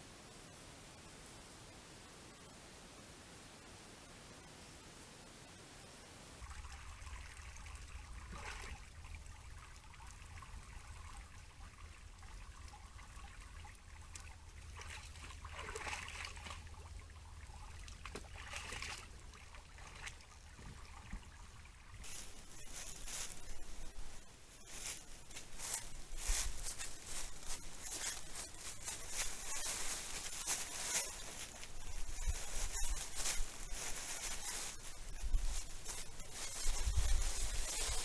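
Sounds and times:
water trickling and splashing: 6.4 - 38.0
rustling in dry leaves: 22.0 - 38.0.

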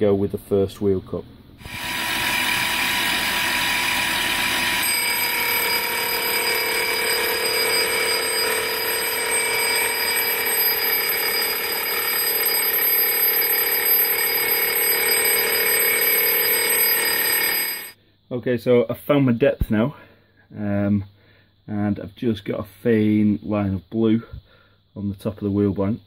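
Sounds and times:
milling machine whine: 1.6 - 18.0.

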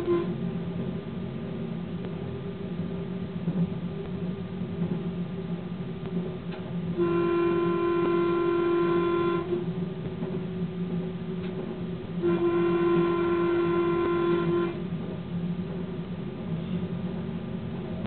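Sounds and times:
train horn blasts: 0.0 - 0.4, 6.9 - 9.8, 12.1 - 15.0
train rumbling: 0.0 - 18.0.

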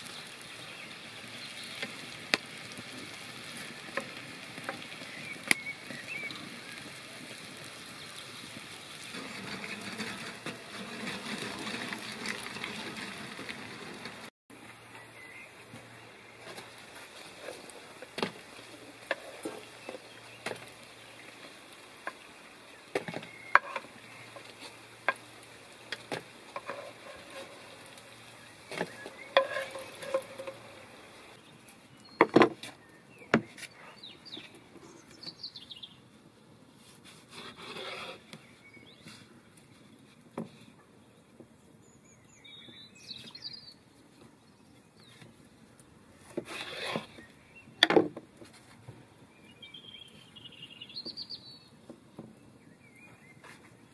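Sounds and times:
wooden stick scraping ceramic bowl: 9.1 - 13.3, 23.6 - 23.8, 26.6 - 27.6, 28.7 - 30.7, 37.1 - 38.3, 46.4 - 47.2.

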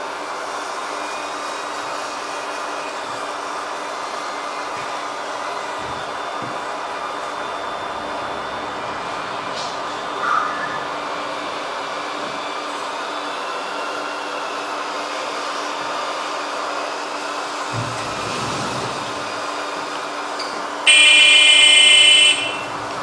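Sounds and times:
rc trucks humming: 20.4 - 23.0
electronic truck horn: 20.9 - 22.8.

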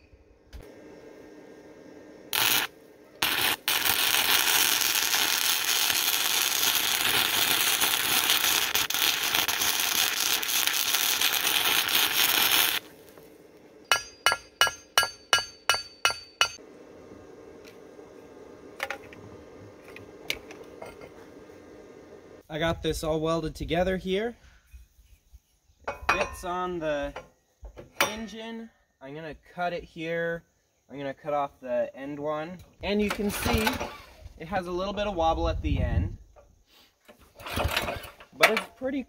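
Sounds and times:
welding arc sizzling: 0.6 - 16.6
welding arc strikes: 2.3 - 16.6
ringing metal taps: 25.9 - 26.5.

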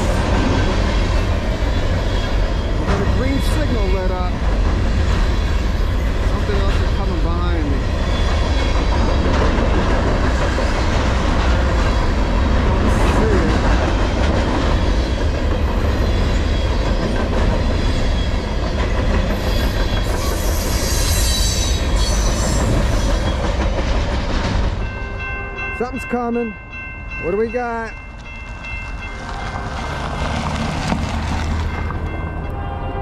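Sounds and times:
train wheels rumbling on rails: 0.0 - 33.0
high wheel squeal: 19.3 - 23.4.

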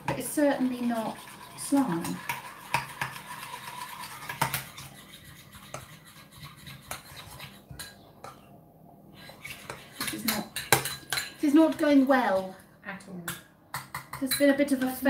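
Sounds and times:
cutlery scraping bowls: 0.0 - 8.5, 9.2 - 12.6.

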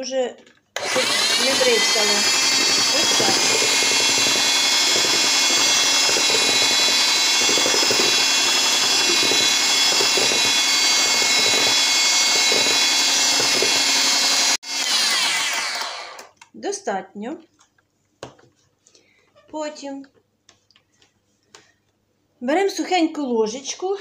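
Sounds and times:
electric hand mixer whining: 0.8 - 16.4.

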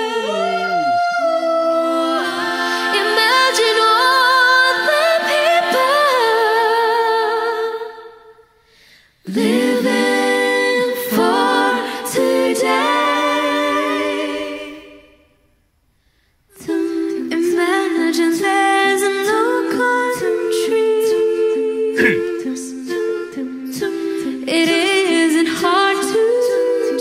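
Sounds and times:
female vocal group singing: 0.0 - 8.4, 9.2 - 15.3, 16.5 - 27.0.

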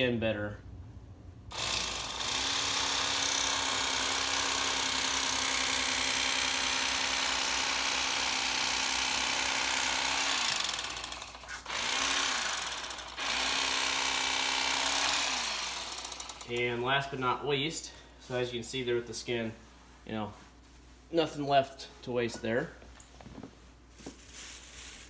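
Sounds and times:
electric fillet knife running: 1.5 - 16.6.

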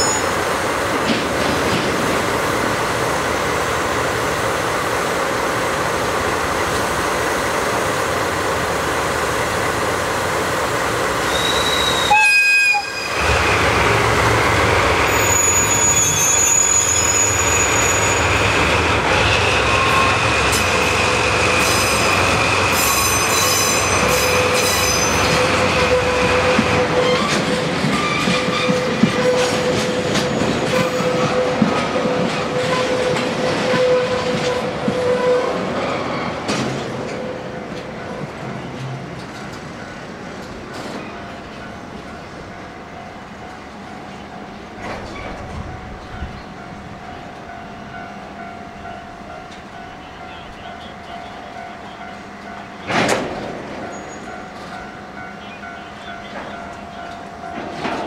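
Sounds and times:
wheels clattering on track: 0.9 - 2.4, 52.8 - 54.8, 56.3 - 58.0
high-pitched wheel squealing: 15.1 - 18.4.

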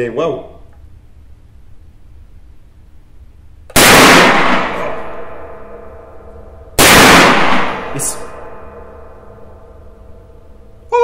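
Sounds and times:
shotgun blasts echoing: 3.7 - 10.0.

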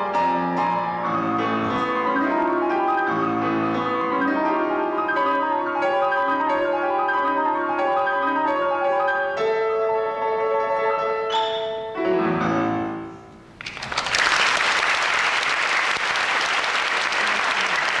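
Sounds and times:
grand piano playing: 0.0 - 13.6
audience applause: 13.6 - 18.0.

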